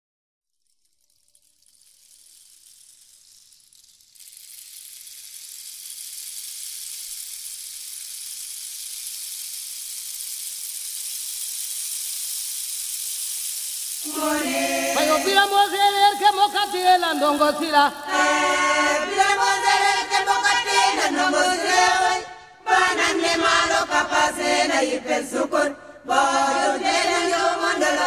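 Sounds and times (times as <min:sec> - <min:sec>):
high hissing noise: 0:00.9 - 0:28.0.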